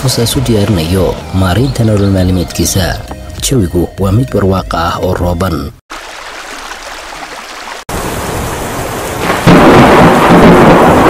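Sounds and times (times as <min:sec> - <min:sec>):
floodwater rushing: 0:05.9 - 0:10.4
heavy rain: 0:05.9 - 0:11.0
thunderclap rumbling: 0:08.0 - 0:11.0.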